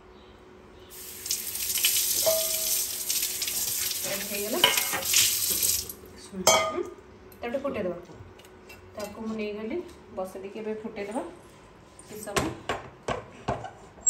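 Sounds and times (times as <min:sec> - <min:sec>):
fish sizzling in an oiled pan: 0:01.0 - 0:05.9.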